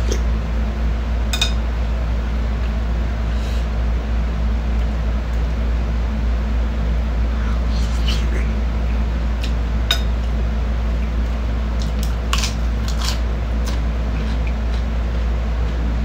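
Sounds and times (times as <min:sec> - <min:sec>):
steady low hum: 0:00.0 - 0:16.0
chewing and crunching: 0:09.4 - 0:15.8.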